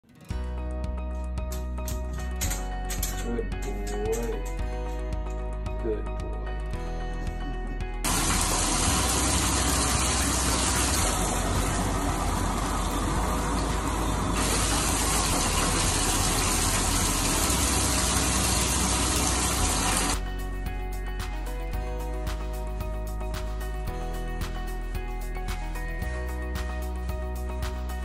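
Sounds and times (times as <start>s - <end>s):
water gushing into a bathtub: 8.1s - 20.2s.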